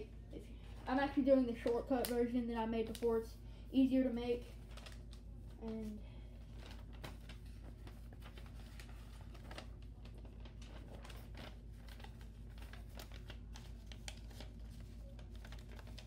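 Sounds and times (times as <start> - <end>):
paper being folded and creased: 4.5 - 16.0.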